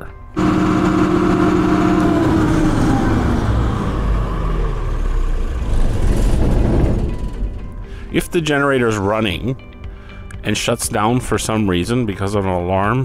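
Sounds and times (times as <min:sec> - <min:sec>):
generator running down: 0:00.0 - 0:09.9.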